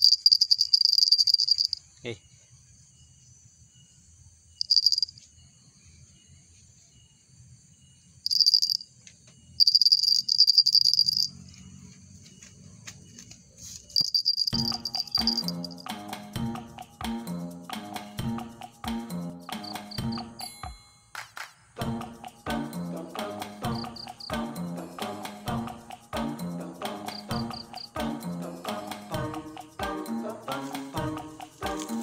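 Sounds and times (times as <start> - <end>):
small jingle bell jingling: 0.0 - 1.8, 4.6 - 5.2, 8.3 - 8.8, 9.6 - 11.3, 13.9 - 15.9
music with plucked beat: 14.6 - 20.4, 21.2 - 32.0.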